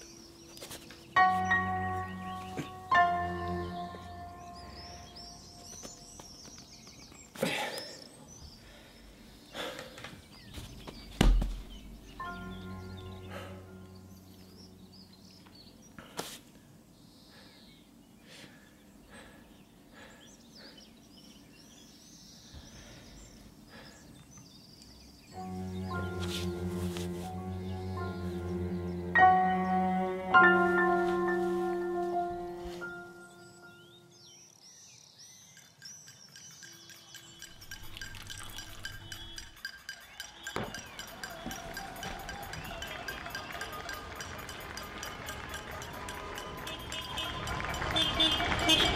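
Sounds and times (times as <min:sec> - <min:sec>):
small birds chirping: 0:00.0 - 0:48.9
high bird chirps: 0:24.8 - 0:41.8
water trickling into soil: 0:37.5 - 0:39.5.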